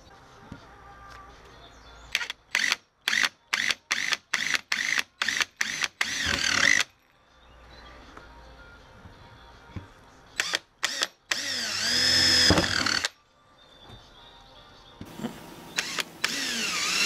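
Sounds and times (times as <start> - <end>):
power drill whining: 4.0 - 6.9, 10.4 - 13.1, 15.7 - 17.0.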